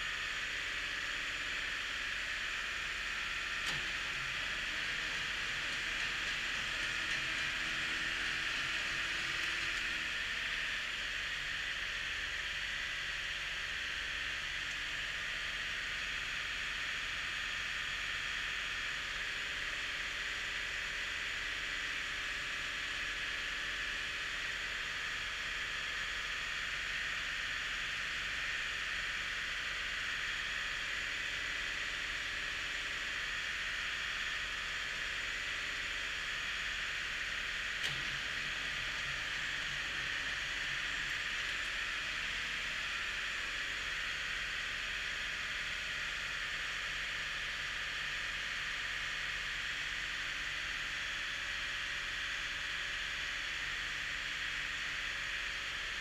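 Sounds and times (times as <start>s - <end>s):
diesel engine running: 1.6s - 12.8s, 35.6s - 45.4s
single click: 37.8s - 38.2s.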